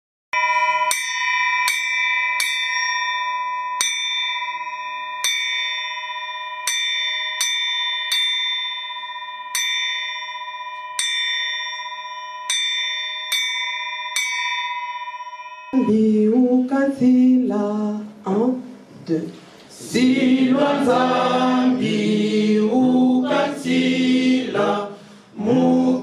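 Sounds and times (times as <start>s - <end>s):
bell ringing: 0.4s - 16.6s.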